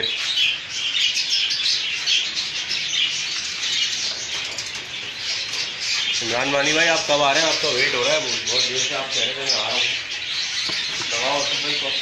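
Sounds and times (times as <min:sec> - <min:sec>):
caged birds chirping: 0:00.0 - 0:12.0.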